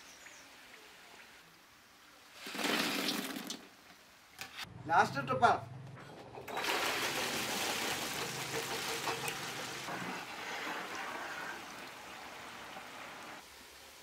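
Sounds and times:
hot oil sizzling and bubbling: 0:06.6 - 0:14.0.

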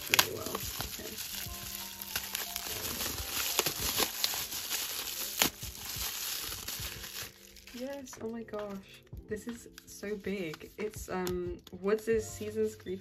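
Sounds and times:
bubble wrap crinkling: 0:00.0 - 0:09.0.

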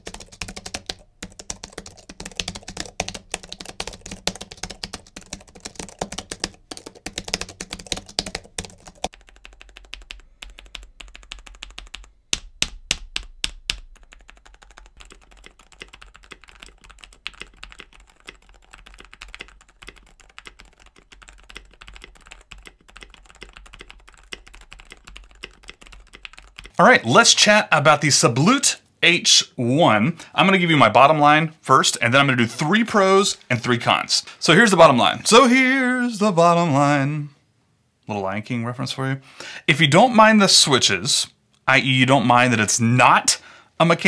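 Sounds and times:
fast typing on keyboard: 0:00.0 - 0:26.8
quiet typing on silent keyboard: 0:00.0 - 0:26.8.

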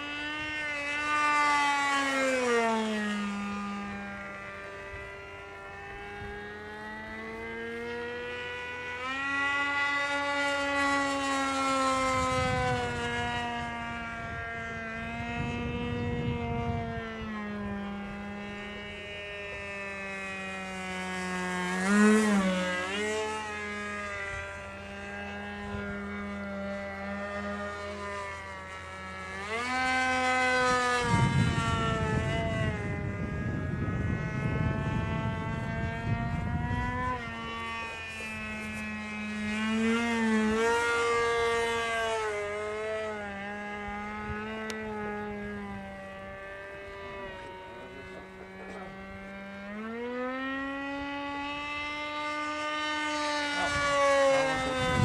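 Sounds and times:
model plane engine at high revs: 0:00.0 - 0:55.0.

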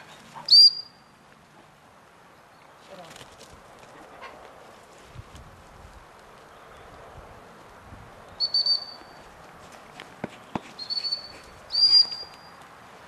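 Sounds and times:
high whistle blasts: 0:08.4 - 0:09.2.

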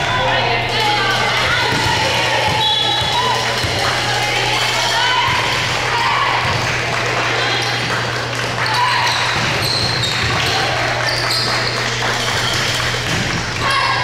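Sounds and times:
spectators' voices echoing: 0:00.0 - 0:14.0
volleyball being struck: 0:01.4 - 0:06.7
sneaker squeaks on hardwood: 0:08.6 - 0:13.4.

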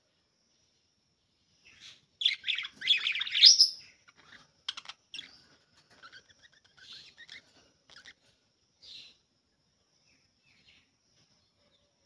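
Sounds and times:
budgerigars chirping: 0:01.7 - 0:09.2.

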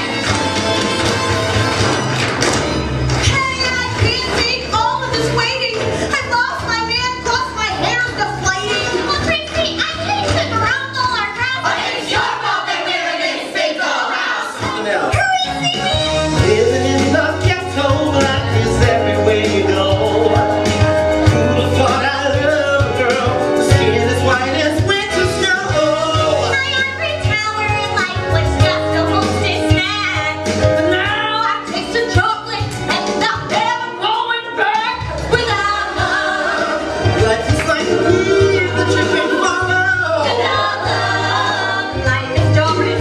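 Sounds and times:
voices singing: 0:03.3 - 0:30.0, 0:33.1 - 0:43.0
band with steady bass beat: 0:14.7 - 0:33.9.

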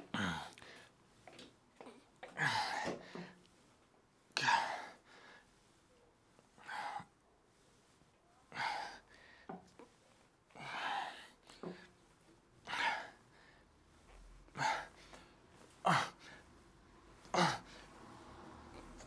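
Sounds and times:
man straining breaths: 0:06.5 - 0:18.1.

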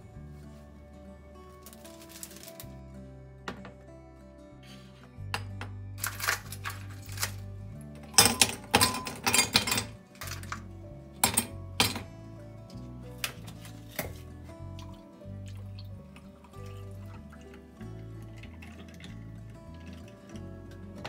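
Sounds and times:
soft background music: 0:00.0 - 0:21.0
ice cubes clinking into a glass: 0:06.0 - 0:10.6, 0:11.2 - 0:12.0.

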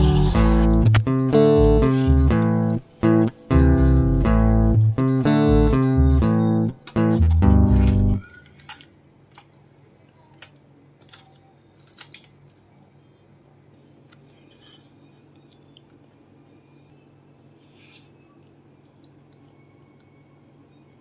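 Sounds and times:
guitar music: 0:00.0 - 0:08.2.

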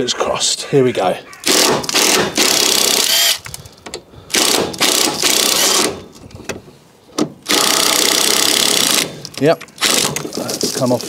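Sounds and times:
impact wrench hammering: 0:04.4 - 0:06.0.

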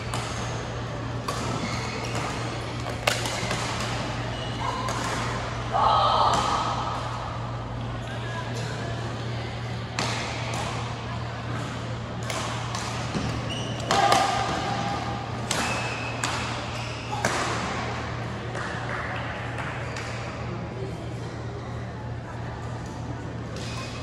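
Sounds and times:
murmur of voices: 0:00.0 - 0:24.0
steady low hum: 0:00.0 - 0:24.0
racket hitting shuttlecock: 0:01.2 - 0:04.0
shoe squeaks: 0:01.6 - 0:02.6, 0:04.1 - 0:04.9, 0:13.3 - 0:13.9.

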